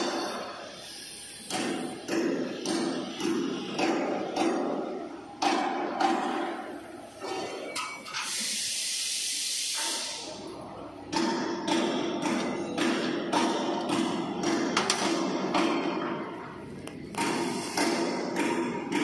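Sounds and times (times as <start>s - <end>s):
compressed air hissing: 0.0s - 2.1s, 8.1s - 10.4s, 17.2s - 18.2s
sharp knocks: 1.5s - 7.4s, 11.1s - 16.4s, 17.1s - 19.0s.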